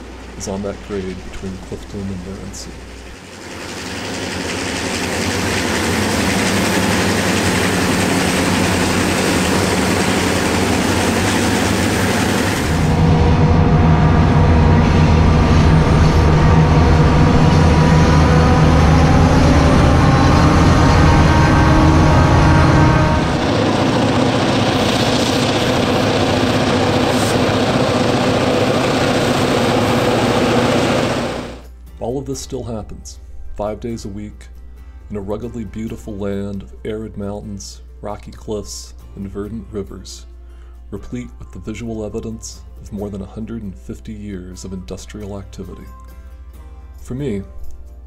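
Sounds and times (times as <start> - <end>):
diesel locomotives passing: 2.0 - 31.7.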